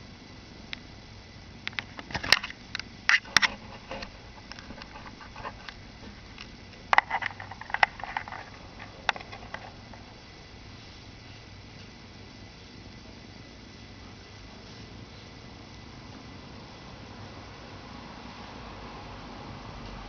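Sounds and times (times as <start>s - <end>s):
faint steady hiss: 0.0s - 20.0s
handling clicks and rustles: 1.7s - 10.2s.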